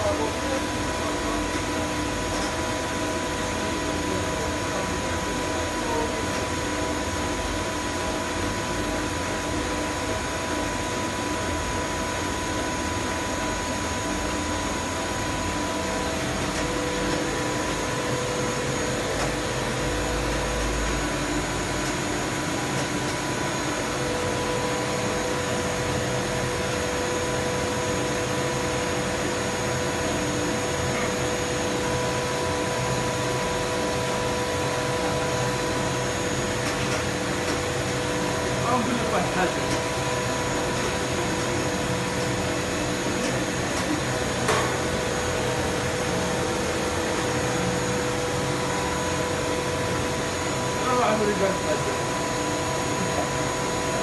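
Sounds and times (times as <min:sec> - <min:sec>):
machine motors whirring drone: 0:00.0 - 0:54.0.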